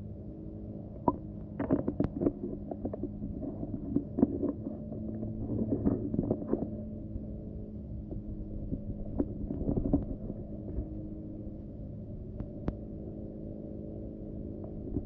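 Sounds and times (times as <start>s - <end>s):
underwater low hum: 0.0s - 15.0s
plastic parts clicking underwater: 1.0s - 6.8s, 8.7s - 10.4s.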